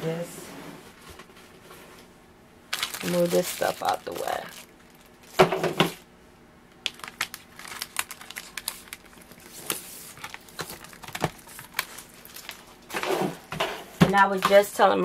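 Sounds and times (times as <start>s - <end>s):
paper and plastic rustling: 2.7s - 6.0s, 6.9s - 14.9s.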